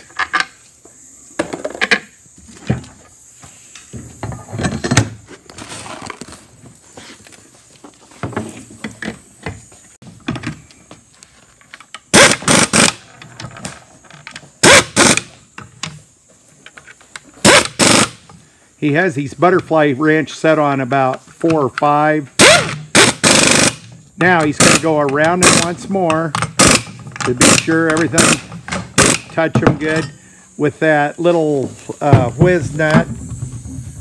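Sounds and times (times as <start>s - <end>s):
pneumatic impact wrench hammering: 12.0s - 13.1s, 14.6s - 16.0s, 17.4s - 18.3s, 22.4s - 30.2s.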